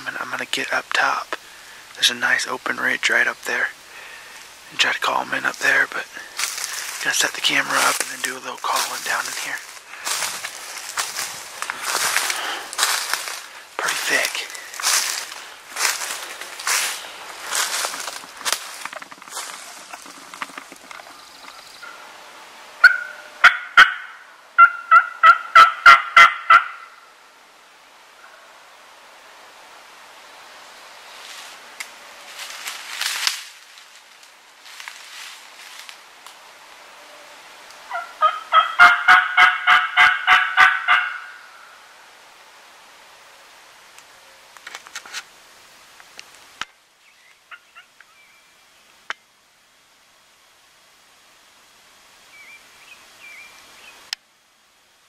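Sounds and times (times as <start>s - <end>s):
turkey call hen yelps: 22.8s - 27.0s, 37.9s - 41.6s, 47.5s - 47.9s.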